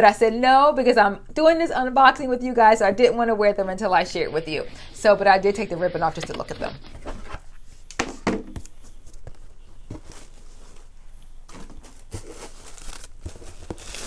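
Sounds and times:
soft knocks and scuffs: 6.3s - 10.9s
cardboard box being handled: 8.6s - 14.0s
tissue paper rustling: 8.8s - 14.0s.

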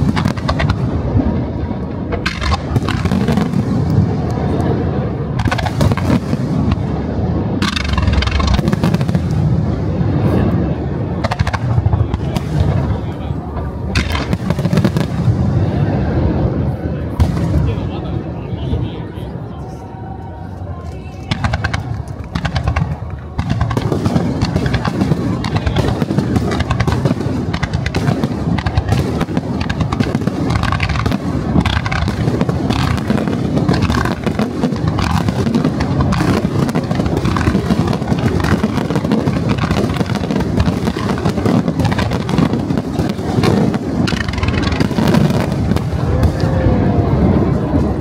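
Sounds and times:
firework shells bursting: 2.1s - 3.6s, 7.6s - 9.4s, 21.3s - 46.4s.

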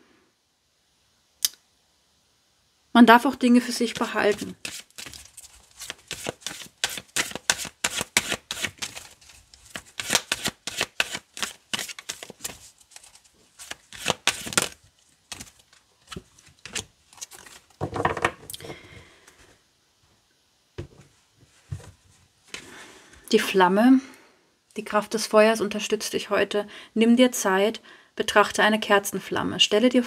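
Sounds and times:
card drawn rustle: 3.8s - 17.8s
cards shuffling: 3.8s - 17.9s.

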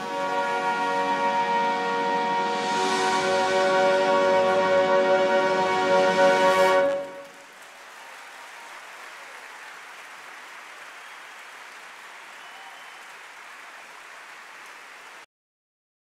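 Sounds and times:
large audience applauding: 0.0s - 1.6s, 2.9s - 15.3s
band final chord: 0.0s - 6.9s.

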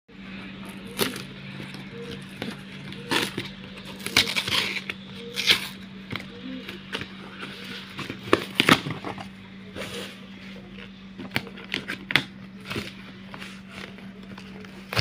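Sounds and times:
steady low hum: 0.1s - 15.0s
packing tape peeling: 2.1s - 5.8s.

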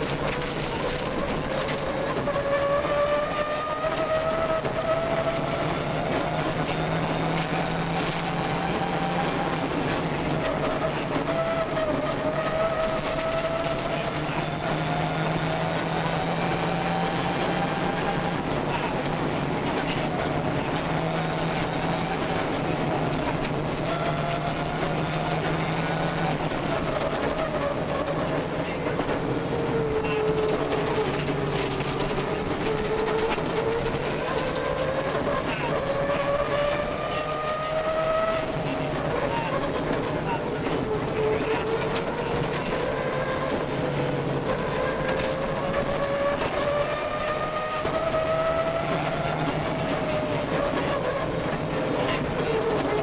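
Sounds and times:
clicks and knocks from road: 0.0s - 5.5s, 6.7s - 11.1s, 12.6s - 14.7s, 22.0s - 29.3s, 30.0s - 43.7s, 44.3s - 49.6s
rally car engine pulling: 0.0s - 53.0s.

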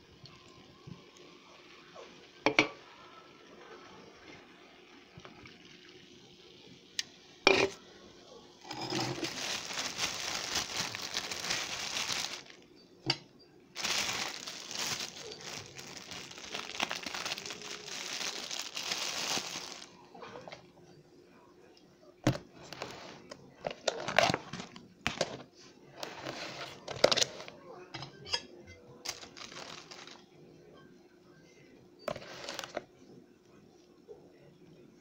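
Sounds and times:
plastic bag crinkling: 8.7s - 12.6s, 13.8s - 20.1s, 29.1s - 30.2s, 32.2s - 32.8s.

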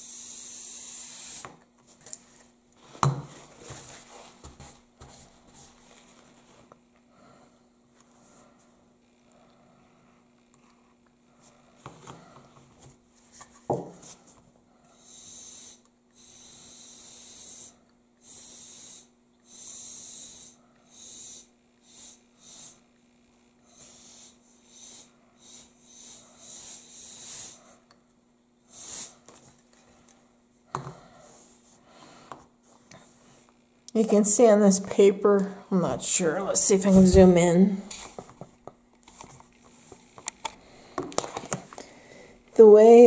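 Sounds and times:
compressed air hissing bursts: 0.0s - 1.5s, 15.0s - 22.8s, 23.7s - 27.8s, 28.7s - 29.2s.

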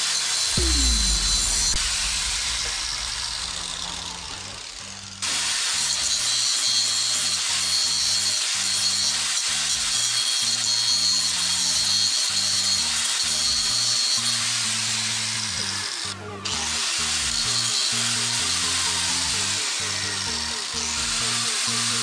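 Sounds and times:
angle grinder cutting plywood: 0.0s - 22.0s
background music with bass line: 0.6s - 5.2s, 15.6s - 22.0s.

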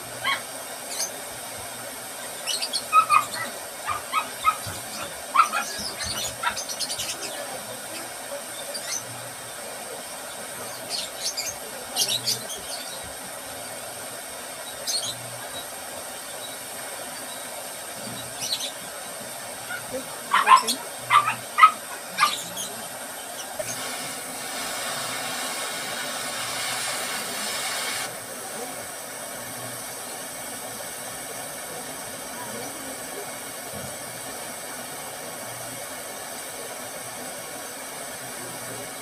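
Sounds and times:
steady background hiss: 0.0s - 39.0s
high-pitched animal chirps and squeaks: 19.7s - 22.8s.

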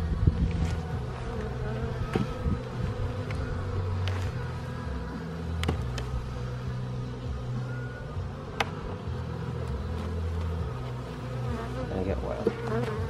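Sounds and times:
bees buzzing: 0.0s - 13.0s.

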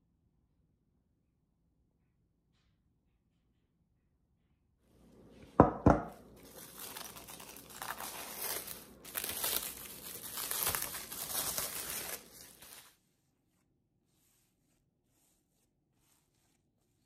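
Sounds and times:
cling wrap crinkling: 6.1s - 13.0s.

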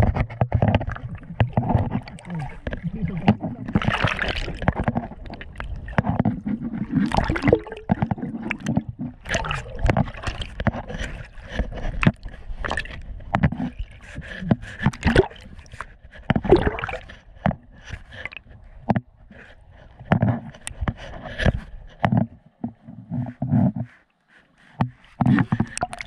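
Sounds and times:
water splashes and knocks: 0.0s - 23.9s, 24.6s - 26.0s
underwater air bubbles gurgling: 0.8s - 10.5s, 16.5s - 17.1s.

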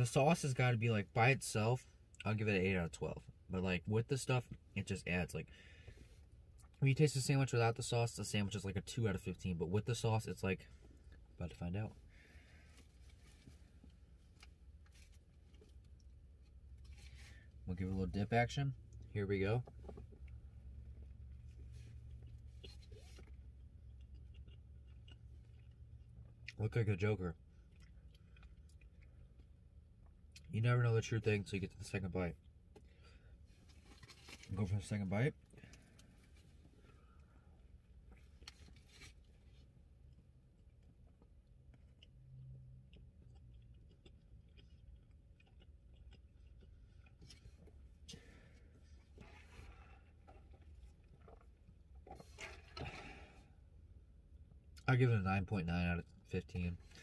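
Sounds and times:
low steady hum: 0.0s - 57.0s
person chewing: 19.8s - 26.6s, 27.5s - 30.5s, 40.6s - 53.3s.

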